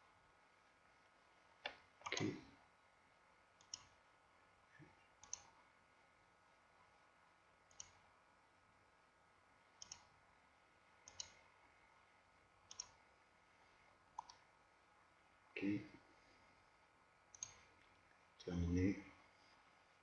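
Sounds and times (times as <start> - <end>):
faint computer mouse clicks: 3.6 - 4.0, 5.2 - 5.6, 7.7 - 8.0, 9.8 - 10.1, 11.0 - 11.4, 12.7 - 13.0, 14.2 - 14.4, 17.3 - 18.0.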